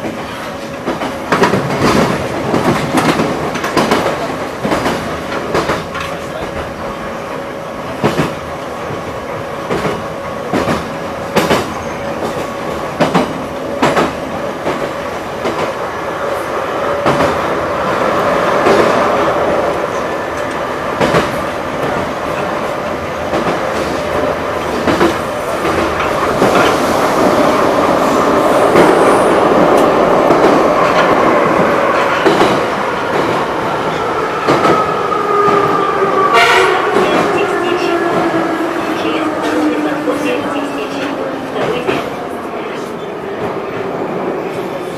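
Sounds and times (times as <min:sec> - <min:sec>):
rail-joint clicks: 0:00.0 - 0:06.7, 0:07.3 - 0:15.8, 0:19.7 - 0:27.6
metro train running: 0:00.0 - 0:44.9.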